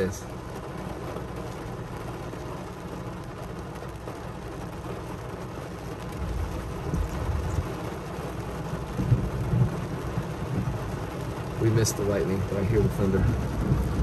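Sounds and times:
car engine: 0.0 - 14.0
heavy rain on car: 0.0 - 14.0
thunder rumbling: 6.1 - 7.8, 8.7 - 11.5, 12.8 - 14.0.

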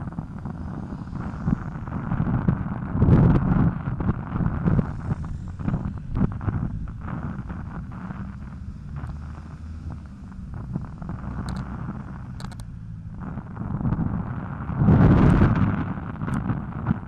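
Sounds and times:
road rumble: 0.0 - 17.0
wind buffeting microphone: 0.0 - 17.0
faint clicks: 10.0 - 12.7, 15.2 - 17.0.

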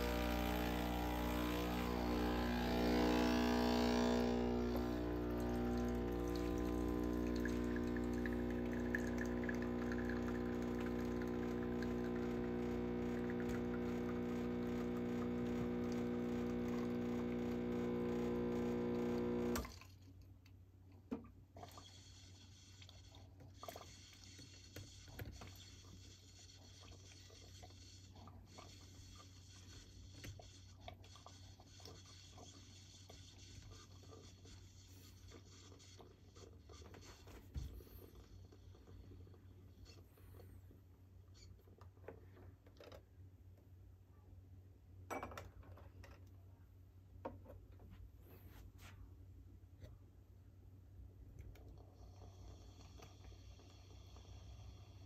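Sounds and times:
espresso machine pump humming: 0.0 - 19.6
faint ticks and drips: 5.4 - 12.3.

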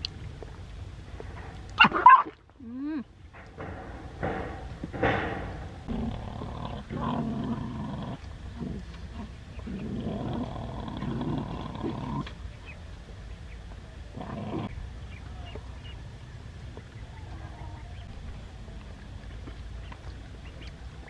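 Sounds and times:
dogs growling: 5.8 - 12.4, 14.1 - 14.8.

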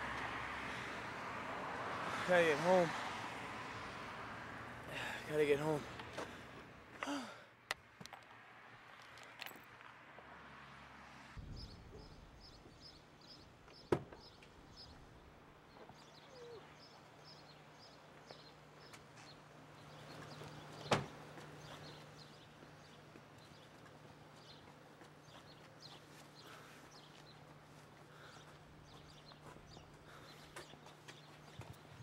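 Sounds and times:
car door shutting: 20.8 - 21.2.

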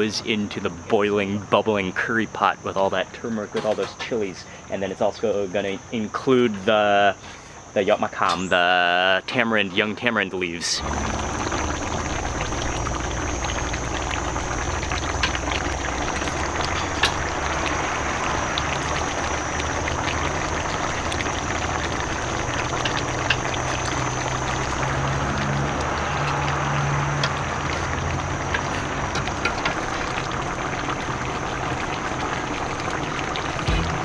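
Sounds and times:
pot of curry boiling: 10.4 - 34.0
steady low hum: 10.7 - 34.0.

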